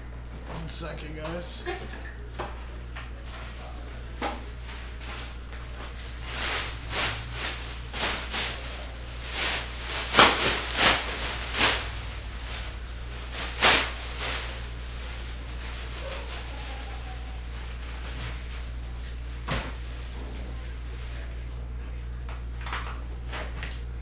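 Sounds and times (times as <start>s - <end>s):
plastic bag rustling: 3.2s - 21.5s.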